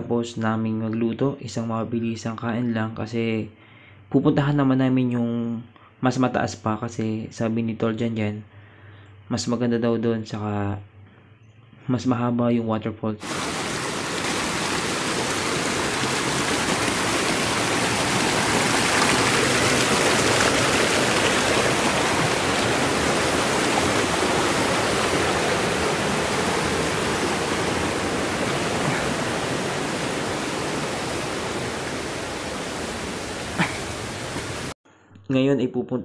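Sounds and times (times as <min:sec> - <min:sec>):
rushing mountain stream: 0:13.2 - 0:34.8.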